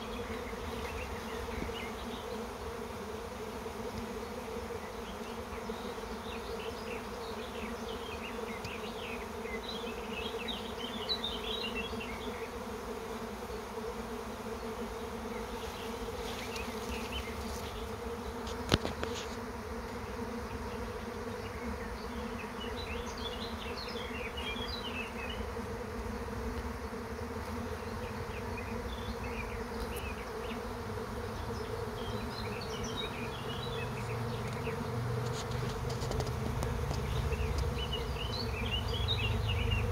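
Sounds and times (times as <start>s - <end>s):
bee swarm humming: 0.0s - 39.9s.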